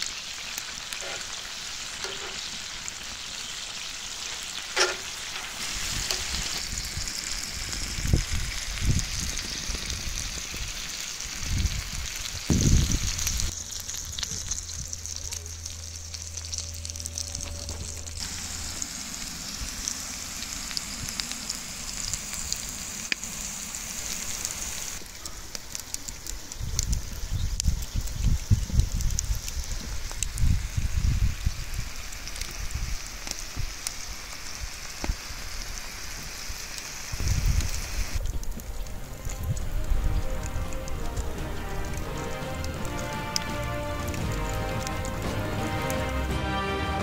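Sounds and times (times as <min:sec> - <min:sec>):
seafood sizzling on a hot plate: 0:00.0 - 0:46.2
low hum: 0:13.5 - 0:24.7.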